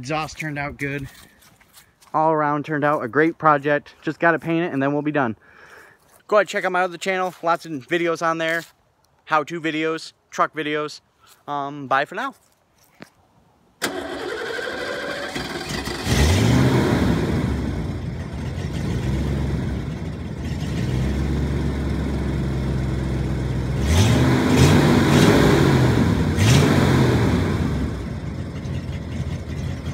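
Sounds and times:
truck engine revving: 13.9s - 29.9s.

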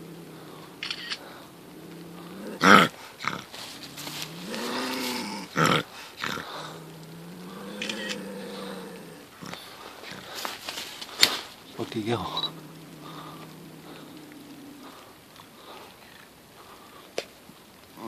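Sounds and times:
bobcat growling: 0.0s - 10.6s, 11.6s - 16.4s
bobcat yowl: 11.8s - 15.2s.

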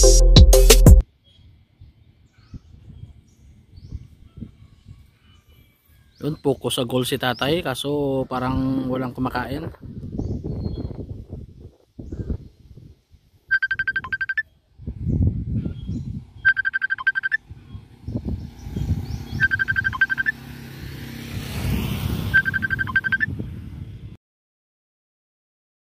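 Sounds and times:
telephone ringing: 16.5s - 17.4s, 22.3s - 23.3s.

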